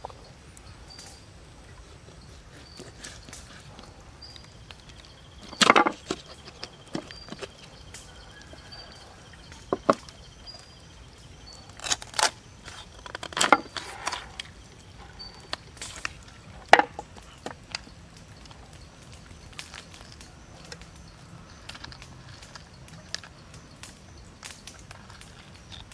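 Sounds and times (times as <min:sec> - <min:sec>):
chicken bones cracking: 0:11.6 - 0:14.5.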